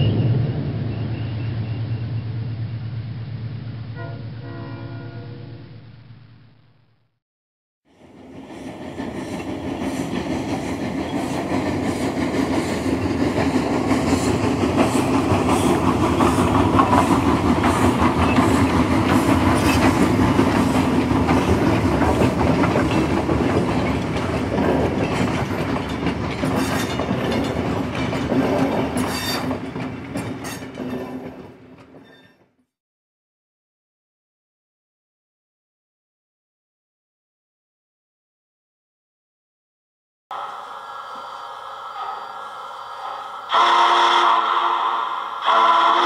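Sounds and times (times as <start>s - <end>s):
train wheels clicking on rails: 8.0s - 32.2s.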